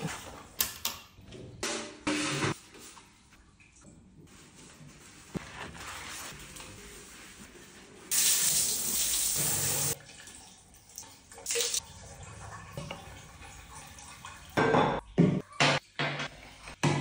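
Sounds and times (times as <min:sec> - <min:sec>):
water running from sink tap: 0:08.1 - 0:14.9.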